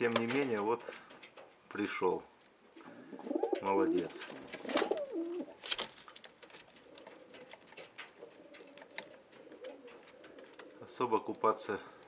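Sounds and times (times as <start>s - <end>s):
pigeons cooing: 2.6s - 5.6s, 6.7s - 11.4s.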